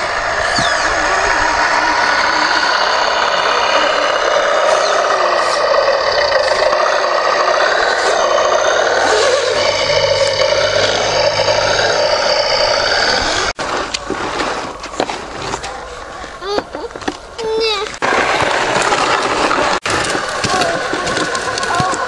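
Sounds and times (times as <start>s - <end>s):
model truck motor whining: 0.0s - 14.9s.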